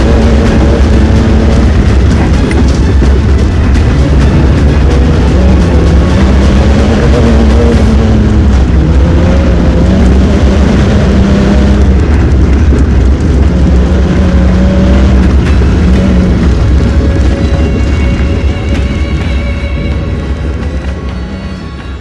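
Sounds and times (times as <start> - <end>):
buggy engine running hard: 0.0 - 22.0.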